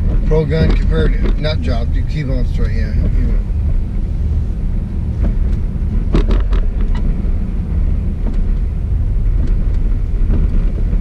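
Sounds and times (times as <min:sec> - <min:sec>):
knocks and clicks: 0:00.0 - 0:01.7, 0:05.2 - 0:07.2, 0:09.3 - 0:11.0
car cabin road rumble: 0:00.0 - 0:11.0.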